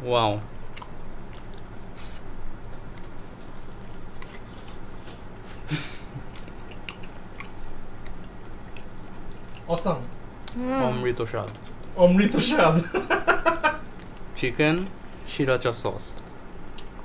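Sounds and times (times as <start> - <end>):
man chewing food: 0.6 - 9.8, 11.4 - 12.0, 13.9 - 15.3, 16.0 - 17.0.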